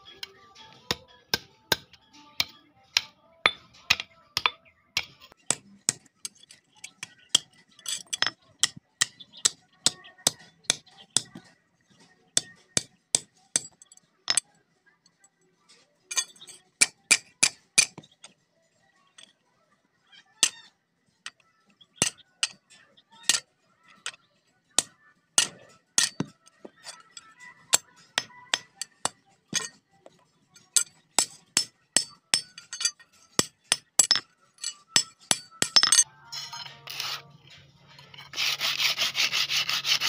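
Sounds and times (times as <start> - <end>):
metal blade tapping on anvil: 0.2 - 6.5, 24.8 - 29.8, 30.6 - 36.7.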